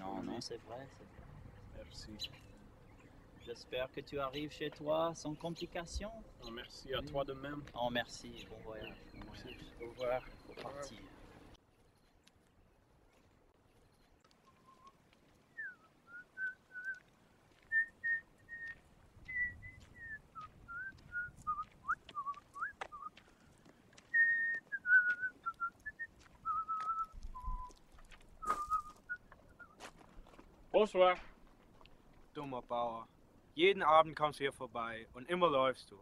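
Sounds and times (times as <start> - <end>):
person whistling a tune: 24.2 - 27.8, 28.4 - 29.7.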